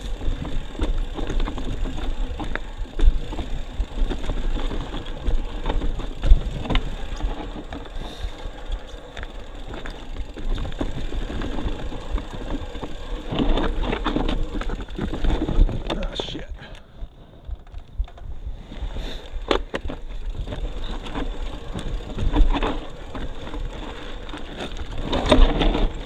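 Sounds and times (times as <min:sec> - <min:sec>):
wind rumble on microphone: 0:00.0 - 0:16.2
bike clacks and rattles: 0:00.0 - 0:26.0
bike tyre rumble on dirt: 0:00.0 - 0:26.0.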